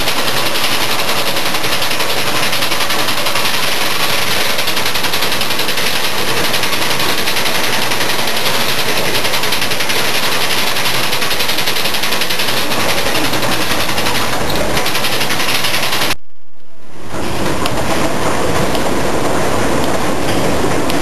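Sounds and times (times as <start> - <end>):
bottling machine clatter and ticking: 0.0 - 16.2.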